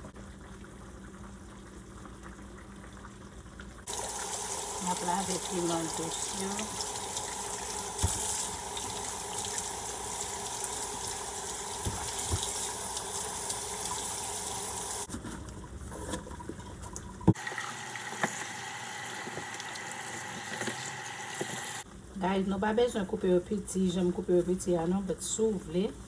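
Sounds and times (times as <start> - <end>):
faucet running water into sink: 3.9 - 15.1, 17.2 - 21.8.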